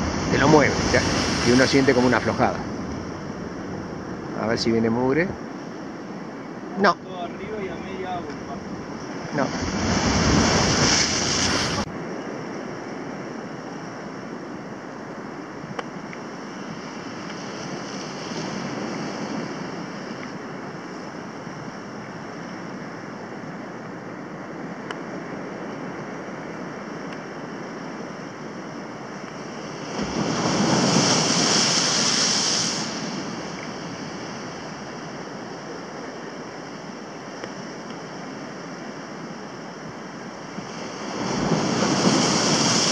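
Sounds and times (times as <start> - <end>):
wave crashing on rocks: 0.0 - 5.3, 6.8 - 13.6, 15.9 - 21.4, 27.5 - 42.9
surf washing against rocks: 0.0 - 13.6, 14.3 - 22.3, 25.1 - 42.9.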